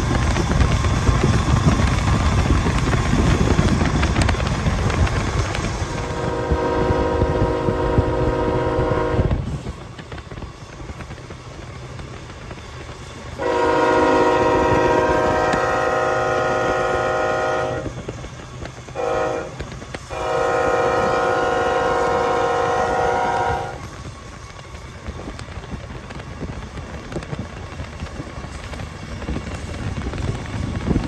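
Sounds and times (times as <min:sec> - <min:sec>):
low rumble of passing train: 0:00.0 - 0:31.0
locomotive air horn blasts: 0:05.1 - 0:09.4, 0:13.4 - 0:18.0, 0:19.0 - 0:23.9.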